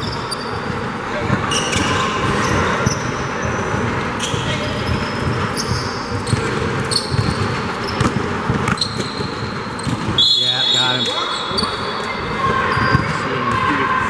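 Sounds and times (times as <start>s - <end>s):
basketball bouncing: 0.0s - 10.2s
sneakers squeaking on court: 0.0s - 13.8s.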